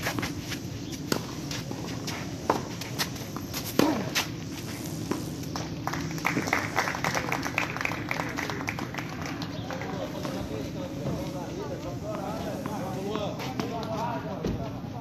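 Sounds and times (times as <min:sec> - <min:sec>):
rackets striking tennis ball: 0:00.0 - 0:06.5.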